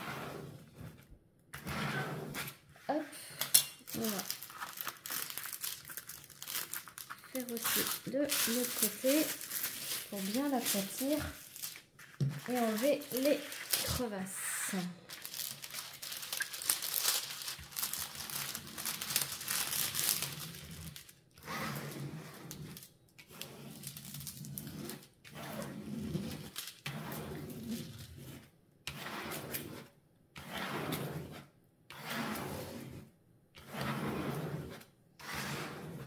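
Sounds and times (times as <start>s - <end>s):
hand rubbing canvas: 7.3s - 14.1s.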